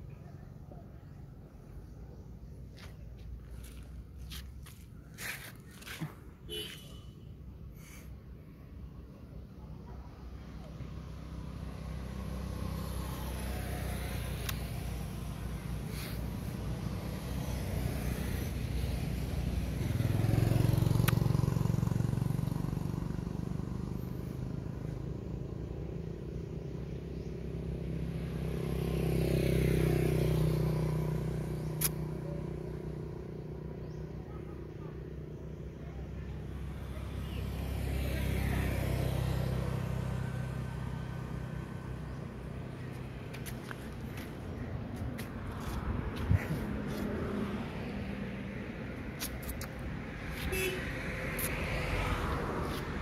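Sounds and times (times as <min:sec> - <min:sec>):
vehicles passing by: 0:00.0 - 0:53.0
faint sharp clicks: 0:31.8 - 0:32.0.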